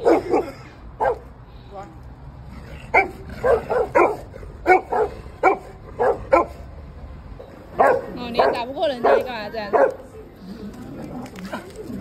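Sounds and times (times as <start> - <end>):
dog barking: 0.0 - 1.3, 2.9 - 6.6, 7.8 - 10.0.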